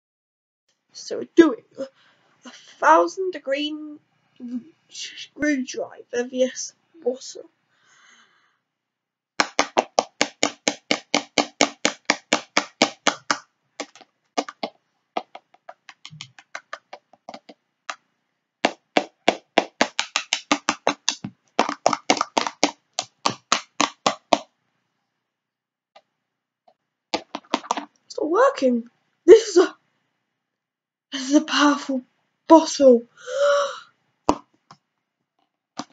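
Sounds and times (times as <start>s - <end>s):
screwdriver tapping plastic bottle: 9.4s - 18.0s, 27.2s - 27.9s.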